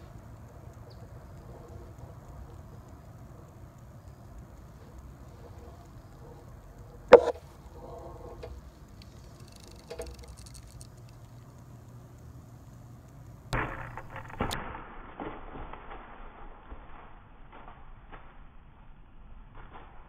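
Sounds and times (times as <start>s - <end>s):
gunshot: 13.6s - 17.1s
deer crashing through dry leaves: 13.6s - 20.0s.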